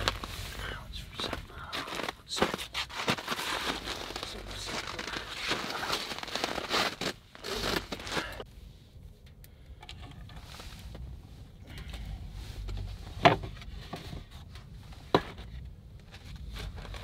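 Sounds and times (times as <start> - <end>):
clothing rustling: 0.0 - 8.4.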